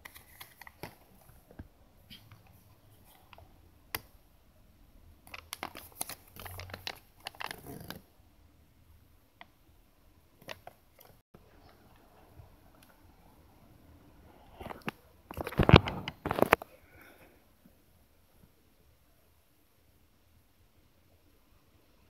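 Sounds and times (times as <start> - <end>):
paper leaflet rustling and crinkling: 0.0 - 3.4, 5.3 - 8.0, 14.7 - 16.6.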